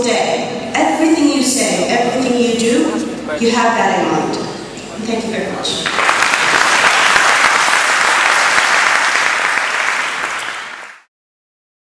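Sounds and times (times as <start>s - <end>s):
audience applauding: 5.8s - 11.1s.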